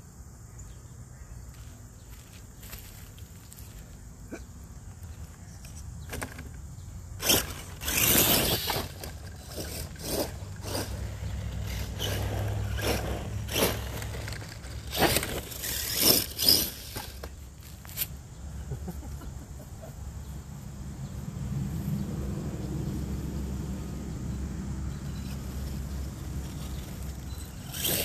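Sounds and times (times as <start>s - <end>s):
tyres crunching on gravel: 1.5s - 18.2s, 25.0s - 28.0s
toy truck motor rumble: 4.8s - 18.1s, 24.9s - 28.0s.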